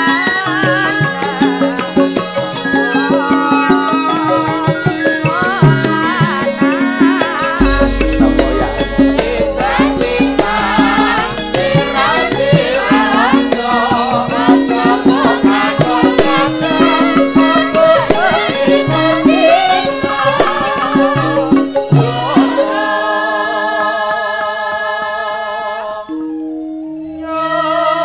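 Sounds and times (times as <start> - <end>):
metallophone tones: 0.0 - 22.9
woman singing ornamented melody: 0.0 - 28.0
hand drum strokes: 7.3 - 22.6
deep gong hum: 7.6 - 14.2.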